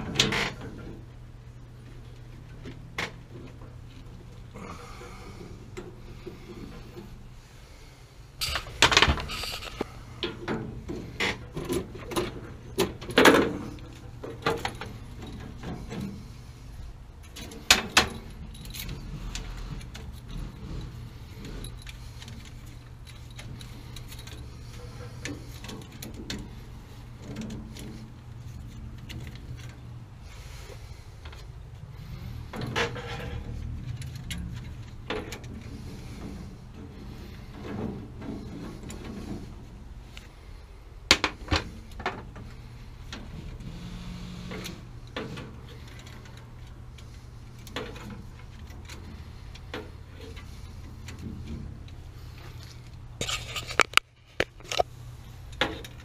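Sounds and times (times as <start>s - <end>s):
steady low hum: 0.0s - 56.0s
metal tools clinking and rattling: 8.4s - 16.4s, 17.2s - 30.6s, 31.3s - 39.7s.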